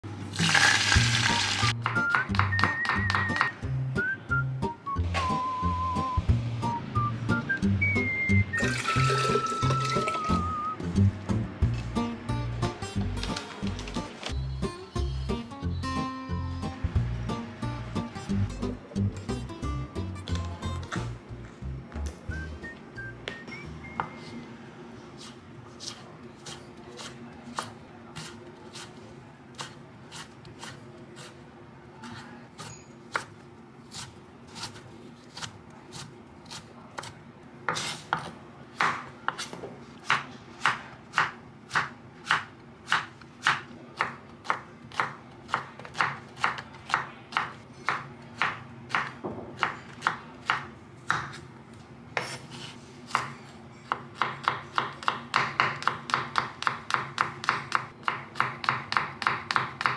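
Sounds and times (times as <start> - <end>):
knife chopping on wooden board: 52.2 - 59.9.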